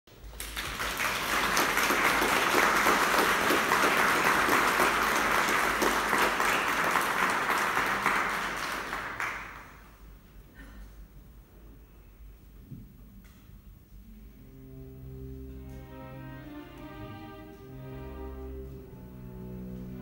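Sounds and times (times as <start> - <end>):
audience applauding: 0.2 - 10.0.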